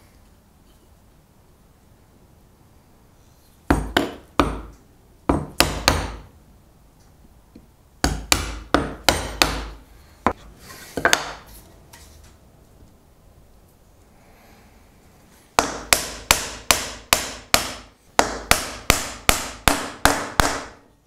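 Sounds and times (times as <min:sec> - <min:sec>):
mallet striking chisel: 0:03.7 - 0:04.7, 0:05.3 - 0:06.3, 0:08.0 - 0:09.8, 0:15.6 - 0:20.8.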